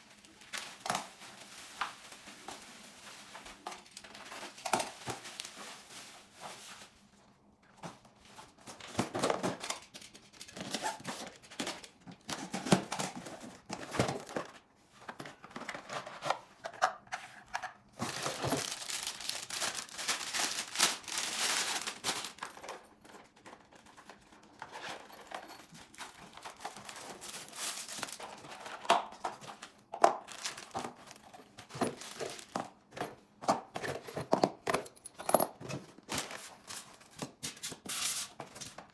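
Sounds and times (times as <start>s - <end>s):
plastic wrapping crinkling: 0.0s - 7.1s, 18.0s - 32.9s.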